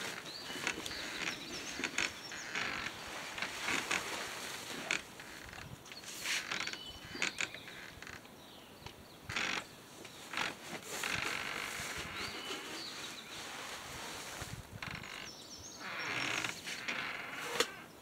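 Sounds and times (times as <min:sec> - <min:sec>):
plastic sacks rustling and crinkling: 0:00.0 - 0:06.7, 0:10.3 - 0:15.2.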